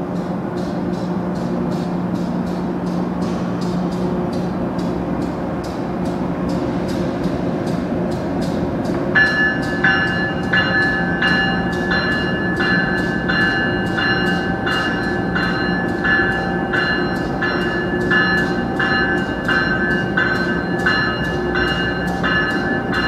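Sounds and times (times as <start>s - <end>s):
electric train rolling past: 0.0s - 23.0s
bell ringing: 9.1s - 23.0s.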